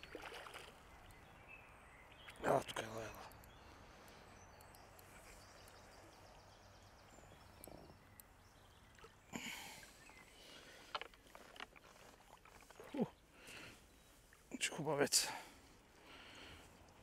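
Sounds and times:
fish splashing in water: 0.0 - 0.9.

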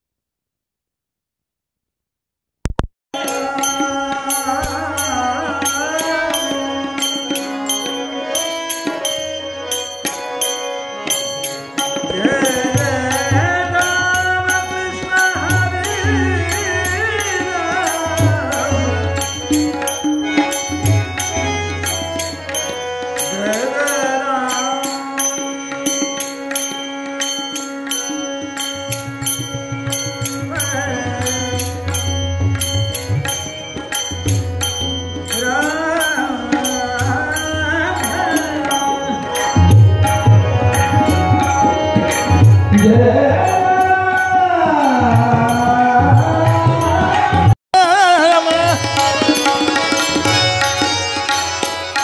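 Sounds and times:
tabla: 2.7 - 52.0
man singing long wordless notes: 3.2 - 7.8, 12.0 - 20.8, 23.2 - 26.0, 30.3 - 32.6, 35.3 - 40.0, 40.8 - 50.4.

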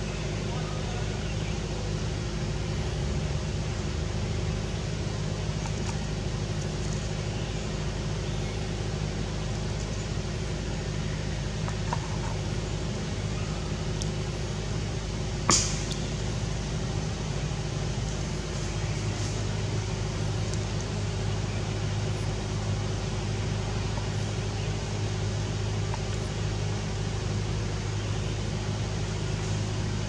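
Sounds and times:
low mechanical hum: 0.0 - 30.0
sharp crack: 15.4 - 16.1.

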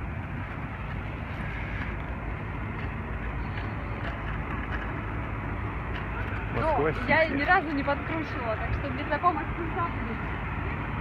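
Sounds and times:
skate wheels rolling on asphalt: 0.0 - 8.3.

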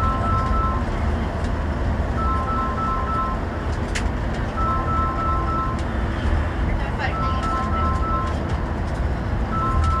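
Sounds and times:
two-tone electronic beeps: 0.0 - 0.9, 2.2 - 3.4, 4.5 - 5.8, 7.0 - 8.4, 9.5 - 10.0
bus engine and tyre rumble: 0.0 - 10.0.

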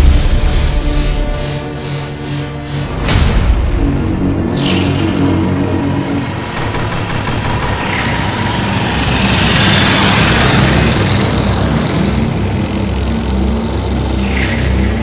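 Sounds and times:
aircraft rushing and rumbling: 0.0 - 15.0
machine-gun fire: 6.6 - 7.9.

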